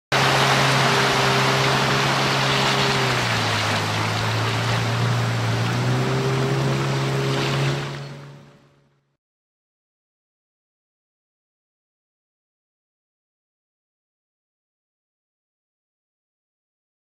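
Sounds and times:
rushing water: 0.1 - 8.9
outboard motor droning: 0.1 - 9.2
wind: 0.1 - 9.2.

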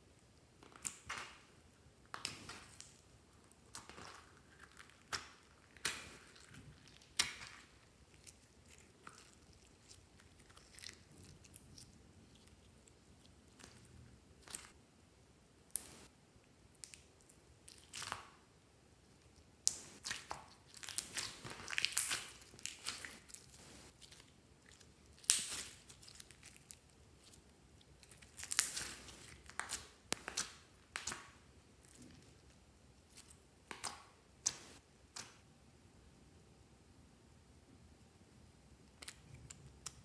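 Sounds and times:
slime sticky crackles: 19.6 - 35.4.

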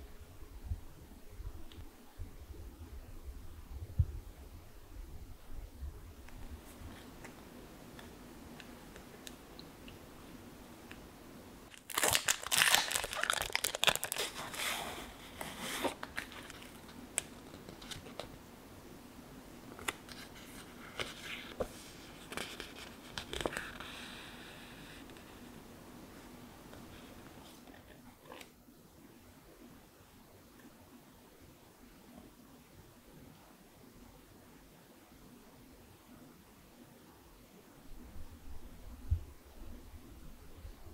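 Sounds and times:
packaging crinkling and rustling: 11.7 - 18.4.

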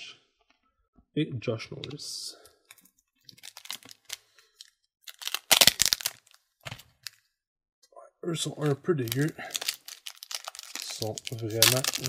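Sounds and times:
foil wrapper crinkling: 3.3 - 7.2, 9.0 - 12.0
foil wrapper ripping: 3.4 - 4.2, 5.1 - 6.4, 9.0 - 12.0.

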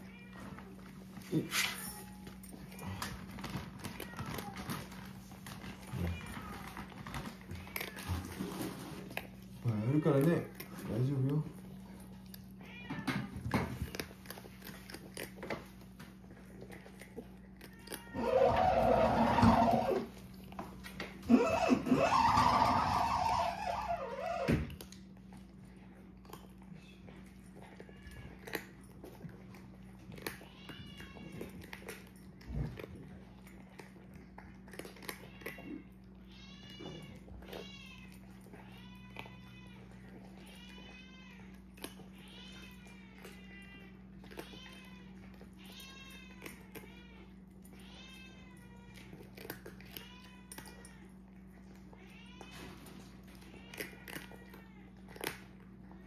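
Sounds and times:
cats crunching dry food: 0.0 - 56.0
cat mewing: 17.7 - 20.1, 21.2 - 24.7.

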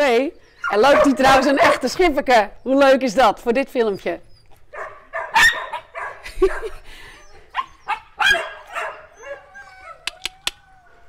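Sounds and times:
dogs barking: 0.6 - 2.1, 4.7 - 6.8, 7.4 - 10.1
dog whining: 7.1 - 11.0
sharp clicks: 10.0 - 10.6.

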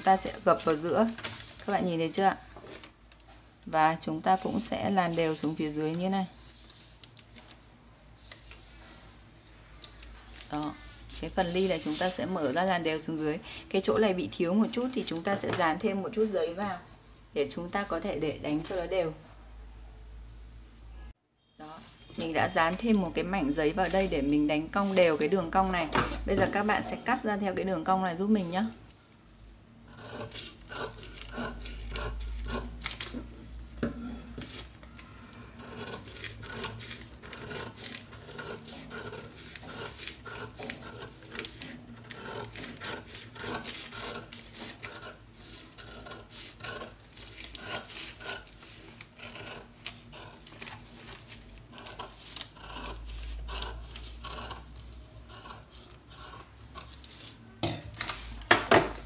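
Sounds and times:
paper rustling: 0.6 - 1.8, 6.3 - 9.0, 39.4 - 45.7, 46.3 - 52.6, 58.0 - 58.5
scissors snipping paper: 35.6 - 57.3.

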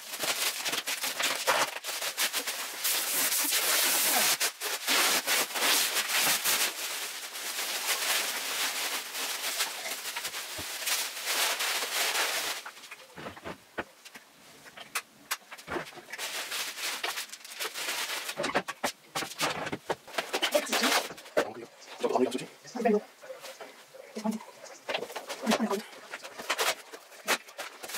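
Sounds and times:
plastic wrapping crinkling: 0.0 - 22.1, 23.1 - 27.9
scattered clicks and knocks: 18.4 - 21.5.

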